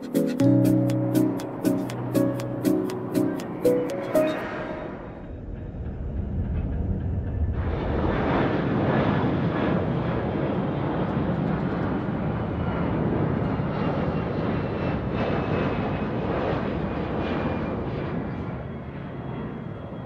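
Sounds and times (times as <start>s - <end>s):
jet engines rumbling: 0.0s - 20.0s.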